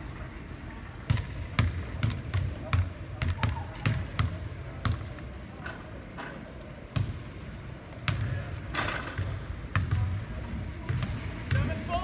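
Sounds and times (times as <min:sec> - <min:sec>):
ball bouncing on hardwood court: 0:01.1 - 0:05.2, 0:06.9 - 0:07.3, 0:08.0 - 0:10.2, 0:10.8 - 0:11.8.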